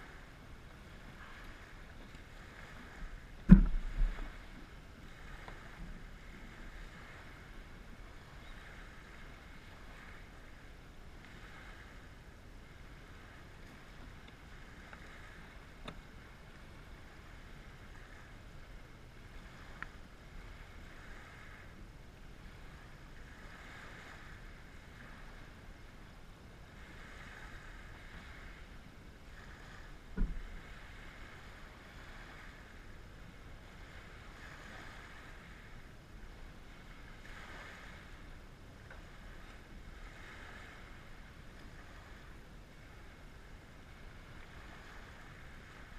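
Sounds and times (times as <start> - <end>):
wind rumble on microphone: 0.0 - 45.9
low thump: 3.4 - 4.3, 30.2 - 30.5.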